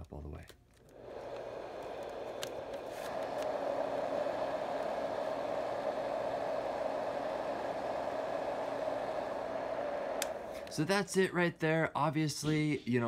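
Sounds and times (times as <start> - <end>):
fan white noise machine rushing: 0.9 - 11.1.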